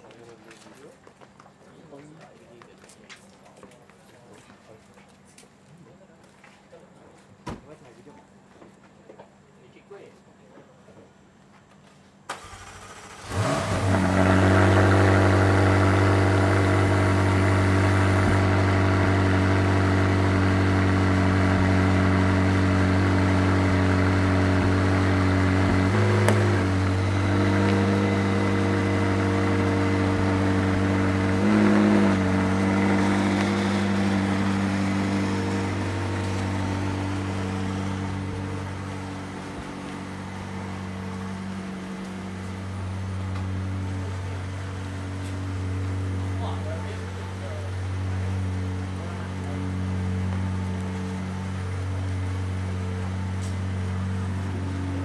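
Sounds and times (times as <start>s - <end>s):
vehicle engine running: 12.4s - 55.0s.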